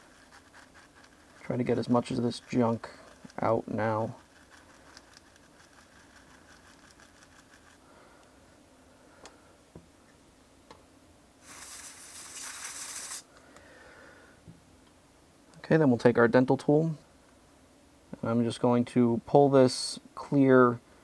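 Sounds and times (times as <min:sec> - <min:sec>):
brush scratching on keyboard: 0:00.0 - 0:07.8, 0:11.4 - 0:13.2
compressed air hiss: 0:11.4 - 0:13.3.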